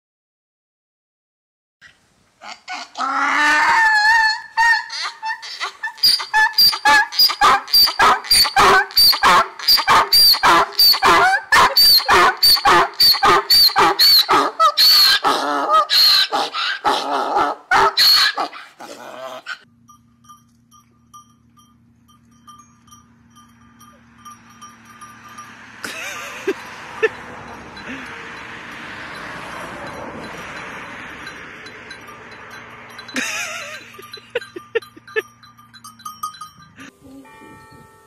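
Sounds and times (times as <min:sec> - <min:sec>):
donkey braying: 0:02.4 - 0:19.7.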